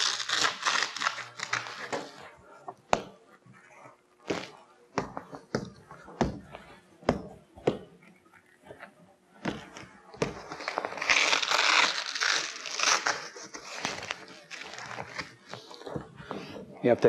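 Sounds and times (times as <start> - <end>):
velcro strip ripping apart: 0.0 - 2.0, 10.5 - 15.4.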